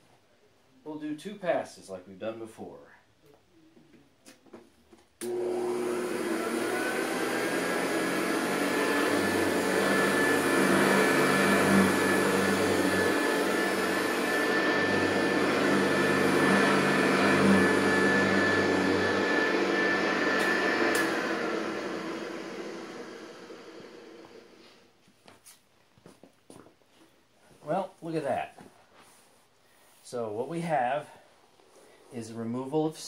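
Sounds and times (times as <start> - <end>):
vacuum cleaner running: 5.2 - 24.8
brush roll turning on carpet: 5.4 - 25.6, 28.6 - 30.2.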